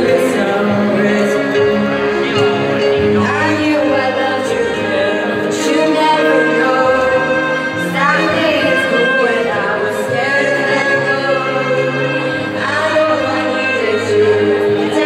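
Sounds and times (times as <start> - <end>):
music with singing voice: 0.0 - 15.0.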